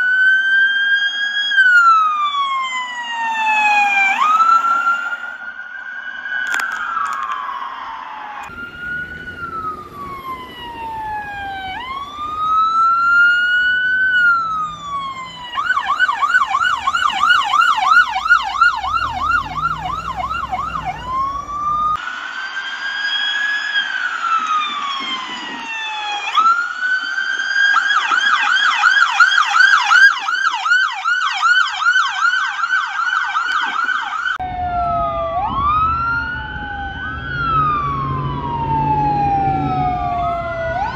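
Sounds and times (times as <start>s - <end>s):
electronic siren wailing: 0.0s - 40.9s
electronic siren yelping: 1.2s - 40.9s
low rumble of engine and traffic: 8.4s - 22.0s, 34.4s - 40.9s.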